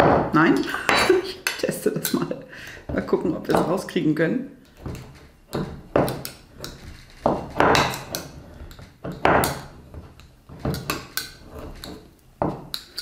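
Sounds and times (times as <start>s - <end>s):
metal utensil scraping glass jar: 5.6s - 13.0s.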